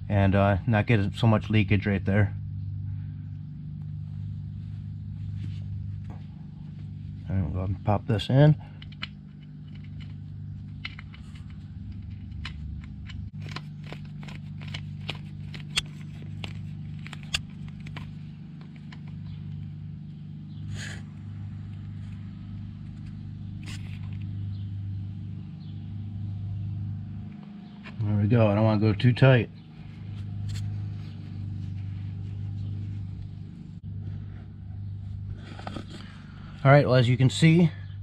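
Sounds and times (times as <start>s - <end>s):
steady low hum: 0.0s - 38.0s
screwdriver clicks and scrapes: 8.8s - 19.4s, 22.9s - 24.4s.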